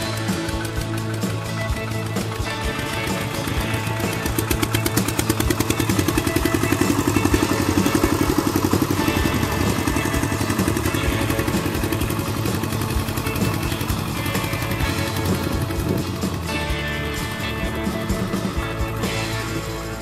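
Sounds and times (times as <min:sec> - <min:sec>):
diesel engine chugging: 0:00.0 - 0:20.0.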